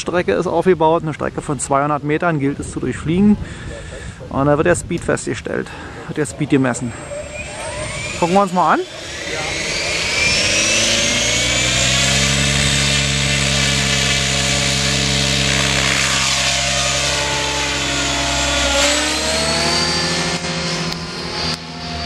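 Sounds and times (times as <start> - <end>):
electric helicopter rotor whining: 5.6 - 22.0.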